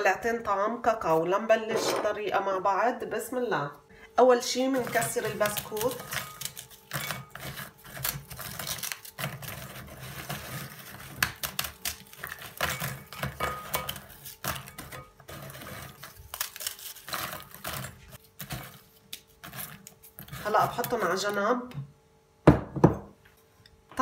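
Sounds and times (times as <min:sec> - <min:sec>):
biscuits snapping and cracking: 0:08.0 - 0:09.8, 0:10.9 - 0:13.0, 0:16.0 - 0:20.2.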